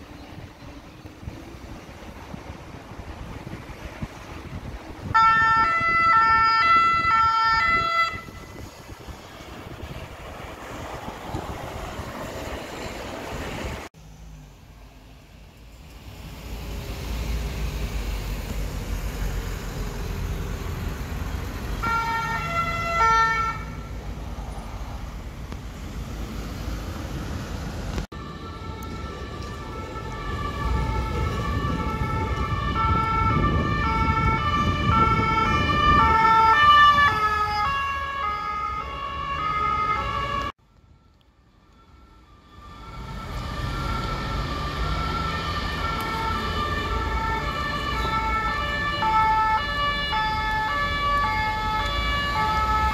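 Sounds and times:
road traffic and engine rumble: 0:00.0 - 0:52.9
two-tone emergency siren: 0:05.1 - 0:08.7, 0:21.8 - 0:23.8, 0:28.1 - 0:52.9.

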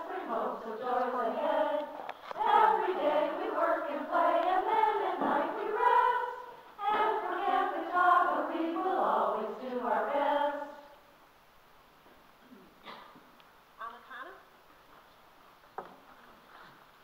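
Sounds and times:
young voices singing: 0:00.0 - 0:11.1.

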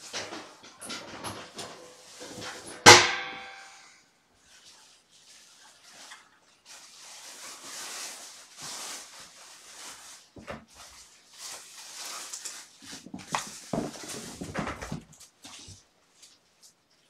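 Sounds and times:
kittens rustling and scratching: 0:00.0 - 0:02.9, 0:04.4 - 0:17.0
knocks and thumps: 0:13.0 - 0:15.2.

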